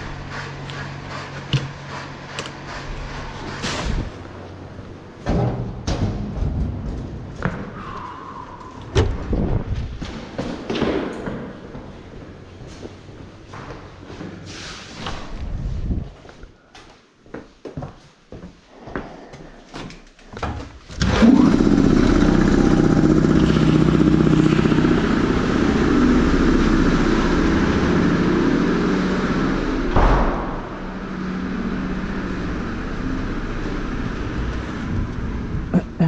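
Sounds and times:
workshop machine running: 0:00.0 - 0:05.2, 0:21.0 - 0:35.7.

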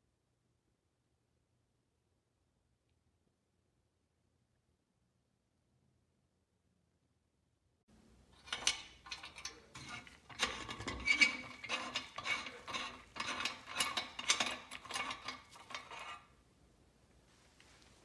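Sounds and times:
rusty nut grating on threads: 0:08.4 - 0:16.3.

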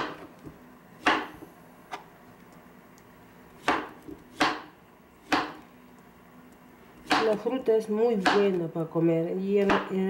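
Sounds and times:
knife chopping on plastic board: 0:00.0 - 0:01.4, 0:03.6 - 0:05.6, 0:07.0 - 0:08.7, 0:09.6 - 0:10.0.

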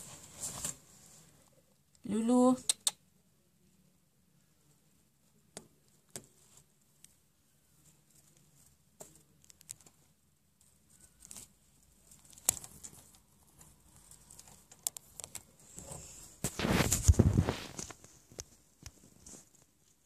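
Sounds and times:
loud rustling and scraping: 0:15.5 - 0:18.3.

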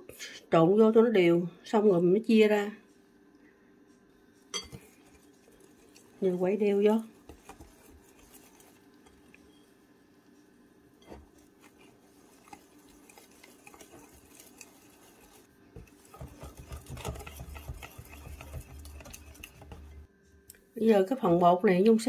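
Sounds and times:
whisk stirring in glass bowl: 0:04.4 - 0:20.1.

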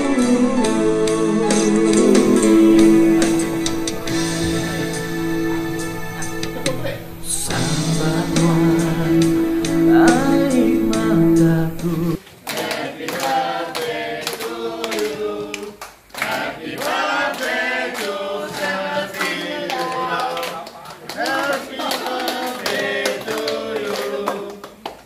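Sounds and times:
background music with low tone: 0:00.0 - 0:12.2
group of people singing: 0:00.0 - 0:24.7.

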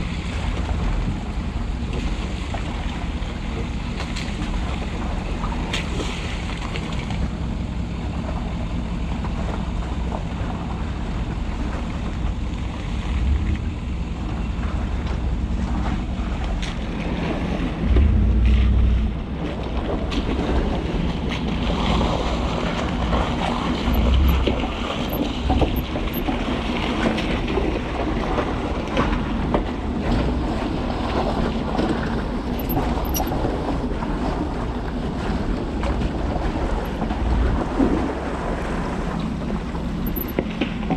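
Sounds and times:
diesel truck engine running: 0:00.0 - 0:40.9
tyres splashing through mud: 0:00.0 - 0:40.9
wind noise on microphone: 0:13.2 - 0:40.9.

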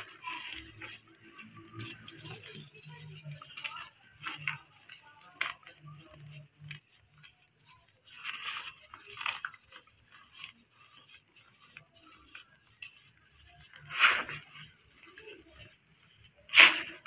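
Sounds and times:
cement lumps crunching: 0:00.0 - 0:17.0.

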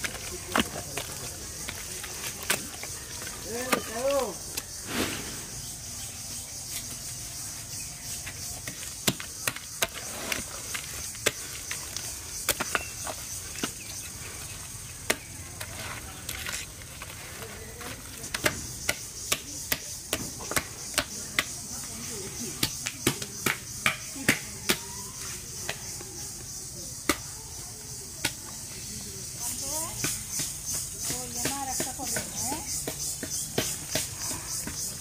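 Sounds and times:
steady high hiss: 0:02.7 - 0:08.5.

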